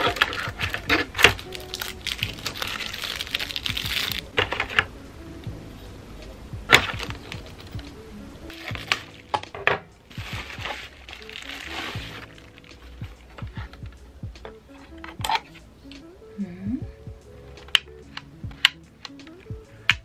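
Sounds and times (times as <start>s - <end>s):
plastic bags crinkling: 0.0s - 4.8s, 6.7s - 7.9s, 8.5s - 13.8s
soft background music: 0.0s - 20.0s.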